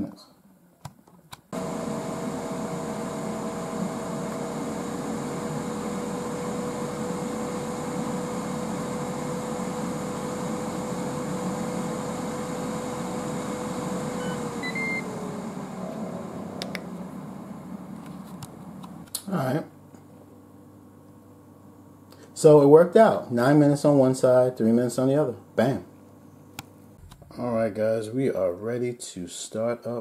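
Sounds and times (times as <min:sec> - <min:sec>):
cooker fan whine: 0:01.5 - 0:27.8
short beeps: 0:14.2 - 0:15.1.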